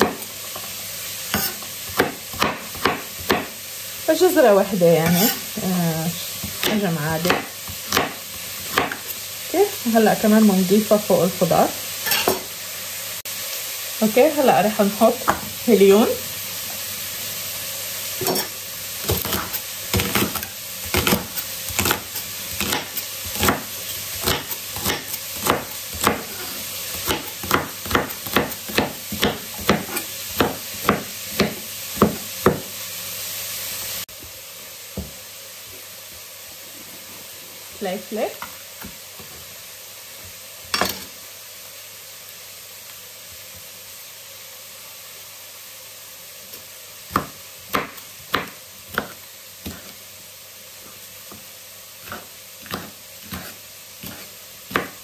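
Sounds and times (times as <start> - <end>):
vegetables sizzling in oil: 0.0 - 55.0
knife chopping on cutting board: 1.3 - 3.5, 6.4 - 9.1, 19.0 - 32.7, 47.1 - 49.9, 52.0 - 55.0.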